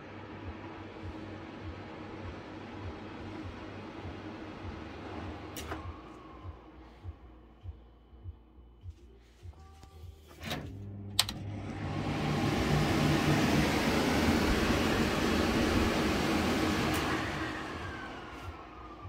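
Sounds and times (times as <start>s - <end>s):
panel click: 11.2s - 11.4s
extractor fan rushing air: 11.2s - 19.0s.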